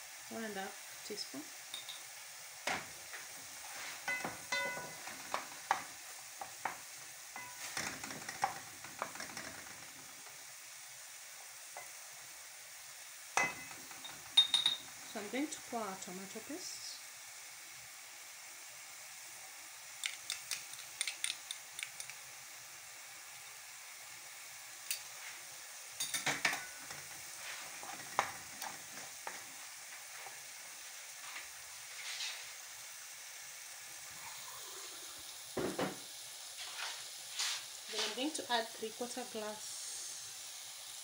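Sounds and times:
sauce sizzling in a pot: 0.0s - 41.0s
spoon tapping against pot: 1.7s - 2.0s, 4.1s - 6.8s, 13.4s - 14.9s
wooden spoon stirring and scraping: 3.1s - 6.8s, 7.4s - 10.1s, 26.4s - 29.5s, 36.6s - 38.4s
knock on pot: 35.6s - 36.0s.

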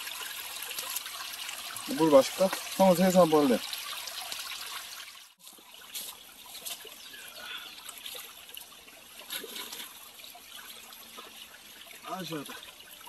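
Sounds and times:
light water splashes: 0.0s - 13.0s
stream trickling over rocks: 0.0s - 13.0s.

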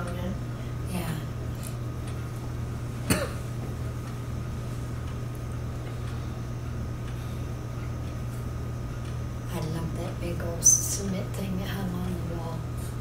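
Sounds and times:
person coughing: 3.0s - 3.4s.

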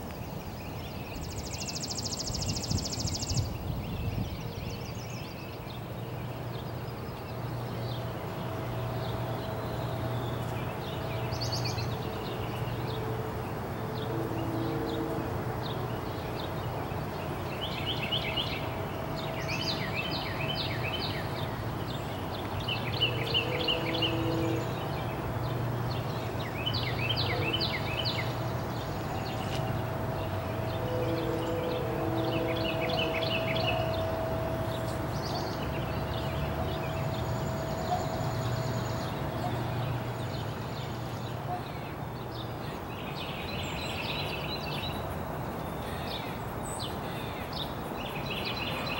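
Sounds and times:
songbirds trilling: 0.0s - 48.9s.

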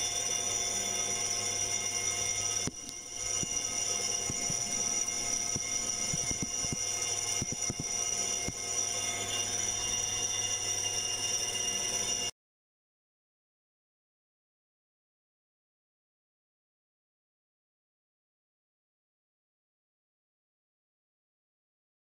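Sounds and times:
machine tool whining: 0.0s - 12.3s.

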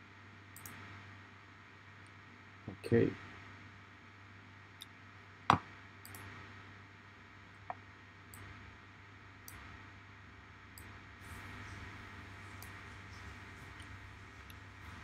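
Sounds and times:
faint steady hum: 0.0s - 15.0s
computer mouse clicking: 0.6s - 0.8s, 5.5s - 6.3s.

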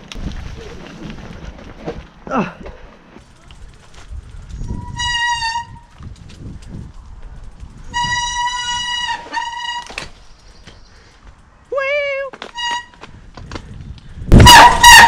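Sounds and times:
tyres rumbling on dirt trail: 0.0s - 15.0s
bike brakes squealing: 4.6s - 5.9s, 7.8s - 10.4s, 12.0s - 13.0s.

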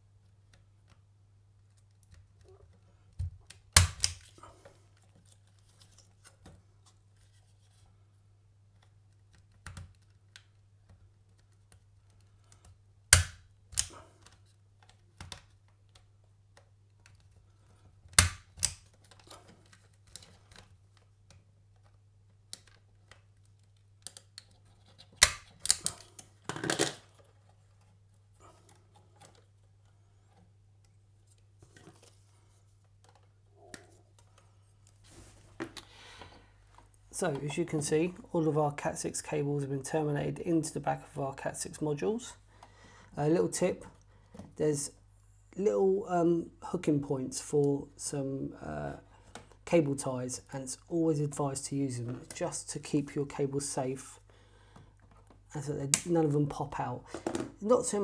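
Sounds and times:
punch-down tool snapping: 13.1s - 13.9s.

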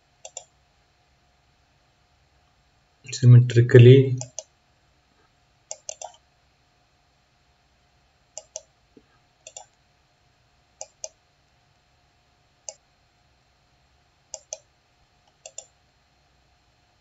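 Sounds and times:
computer mouse buttons clicking: 0.2s - 0.5s, 4.2s - 4.5s, 5.7s - 6.2s, 8.4s - 8.7s, 9.4s - 9.8s, 10.8s - 11.2s, 14.3s - 14.7s, 15.3s - 15.8s.

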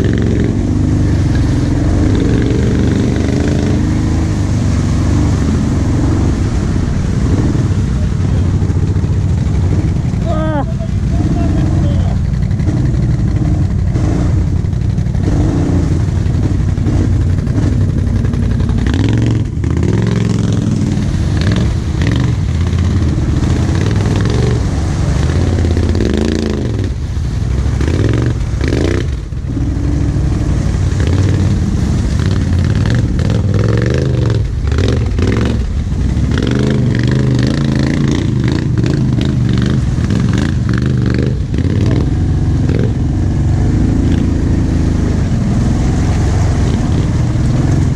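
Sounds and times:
quad engine revving: 0.0s - 47.9s.

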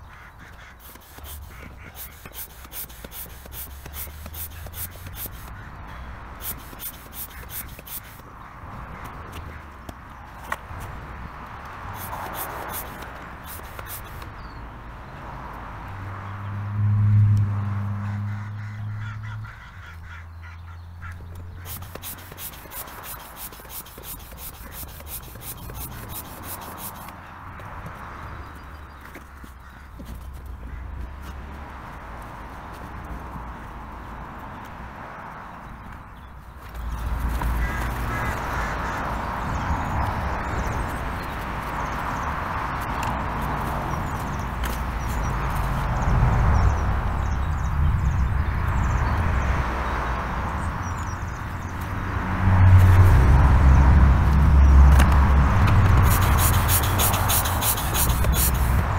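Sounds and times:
hand pump hissing air strokes: 0.6s - 5.5s, 6.4s - 8.3s, 11.9s - 14.3s, 21.5s - 27.2s, 55.9s - 58.9s.

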